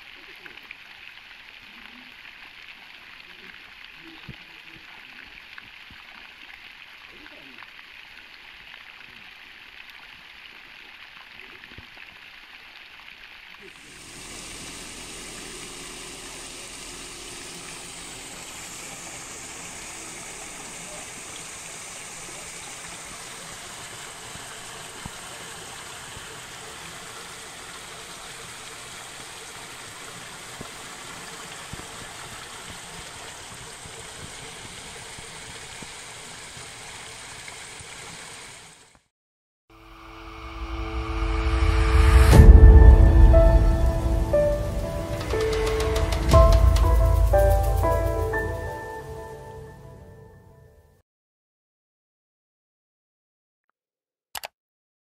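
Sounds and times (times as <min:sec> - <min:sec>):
water rushing through drain grate: 0:13.6 - 0:38.9, 0:43.8 - 0:48.6.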